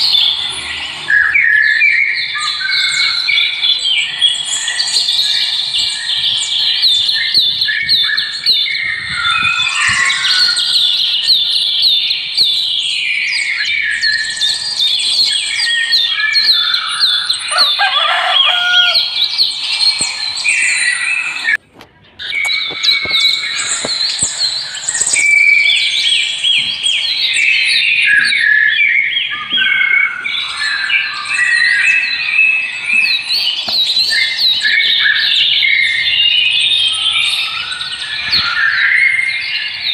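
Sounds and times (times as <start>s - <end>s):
small birds chirping chorus: 0.0s - 39.9s.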